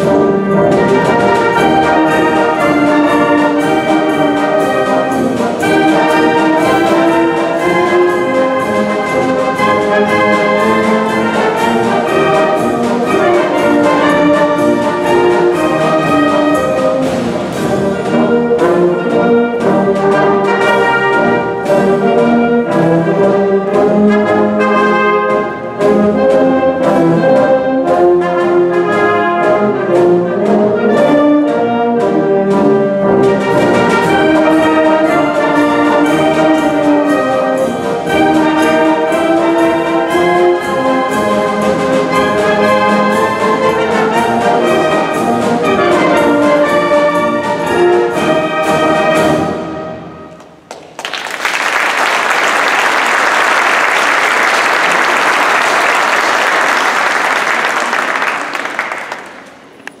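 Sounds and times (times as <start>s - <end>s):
military wind band playing march: 0.0s - 50.7s, 51.4s - 59.9s
regular drum beats: 0.0s - 60.0s
audience applauding: 50.4s - 60.0s.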